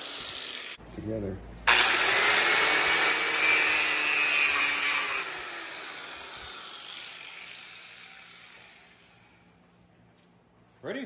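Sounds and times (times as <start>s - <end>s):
angle grinder cutting metal: 0.0s - 0.8s, 1.7s - 9.4s
grinder winding down: 0.0s - 0.8s, 1.7s - 9.3s.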